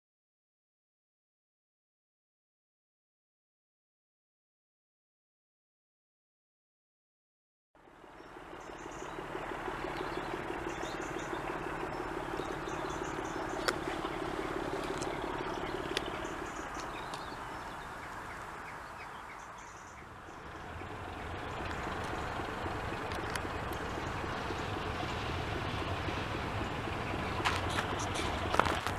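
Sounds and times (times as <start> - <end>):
faint birds chirping: 7.8 - 28.6
diesel locomotive engine working: 7.8 - 28.9.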